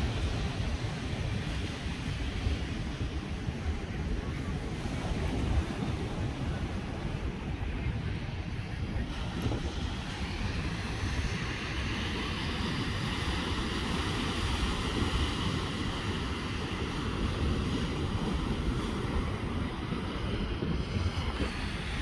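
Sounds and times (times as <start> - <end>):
small surf breaking on beach: 0.0 - 22.0
wind buffeting microphone: 0.0 - 22.0.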